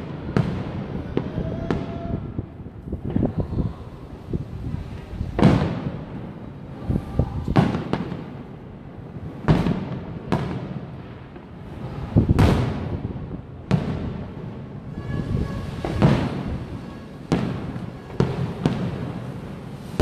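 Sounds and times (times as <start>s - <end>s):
fireworks booming: 0.0s - 20.0s
fireworks pops: 4.2s - 6.0s, 9.4s - 14.2s, 15.0s - 20.0s.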